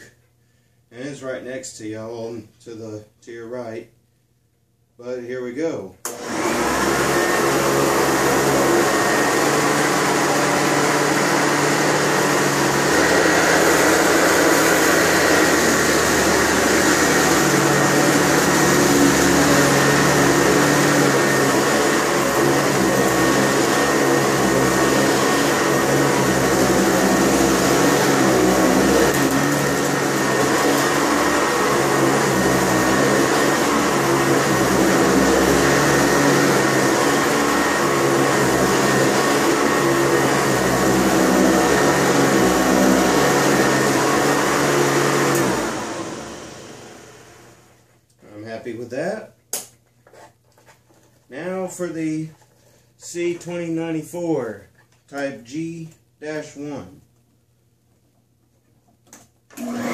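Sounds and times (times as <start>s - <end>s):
upright vacuum running: 6.0s - 47.9s, 59.1s - 59.9s.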